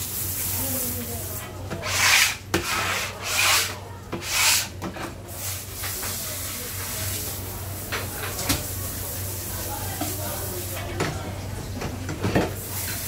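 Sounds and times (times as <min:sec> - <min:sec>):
scraper on plastic cutting board: 0:01.8 - 0:04.7.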